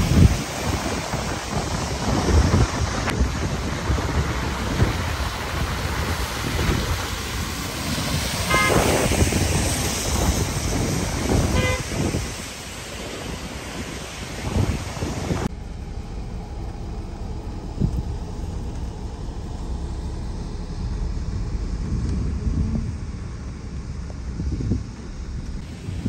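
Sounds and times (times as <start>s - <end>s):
rain: 0.0s - 26.0s
traffic on a flooded road: 0.0s - 26.0s
car horn toots: 8.5s - 9.2s, 11.4s - 12.2s.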